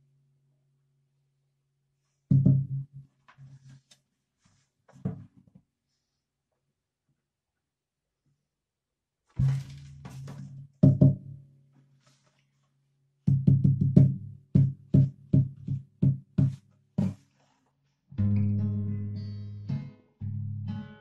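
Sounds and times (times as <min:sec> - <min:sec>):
acoustic guitar low plucks: 0:18.2 - 0:21.0.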